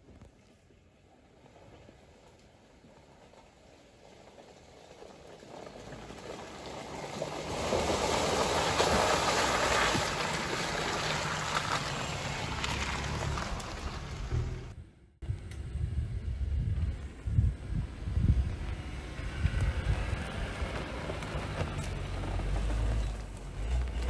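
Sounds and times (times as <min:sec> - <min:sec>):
tyres squelching through mud: 0:01.3 - 0:14.7
car engine driving past: 0:05.8 - 0:14.8.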